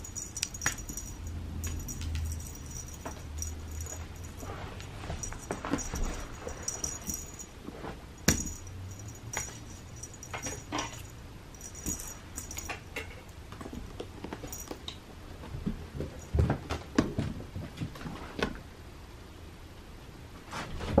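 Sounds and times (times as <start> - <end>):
light jingles: 0.0 - 7.6, 8.2 - 15.0
paws tapping and scuffing carpet: 0.0 - 12.8, 13.5 - 18.6.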